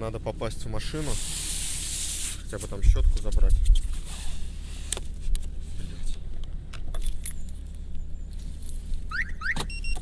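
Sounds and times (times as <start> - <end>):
car keys jingling: 6.8 - 10.0.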